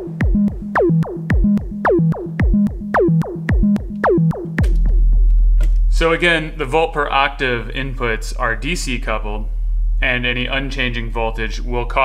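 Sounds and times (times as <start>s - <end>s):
synthesizer low note pattern: 0.0s - 6.2s, 9.5s - 11.1s.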